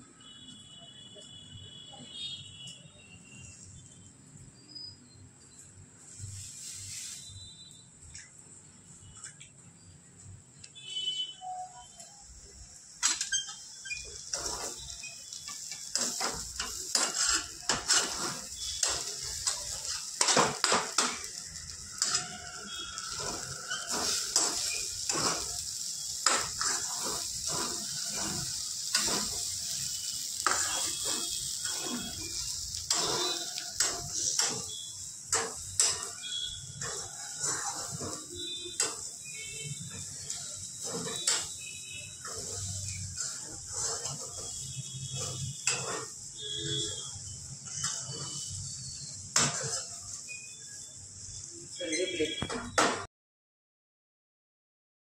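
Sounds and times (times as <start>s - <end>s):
light sizzle from pan: 0.2s - 52.6s
spatula scraping a frying pan: 13.0s - 50.7s.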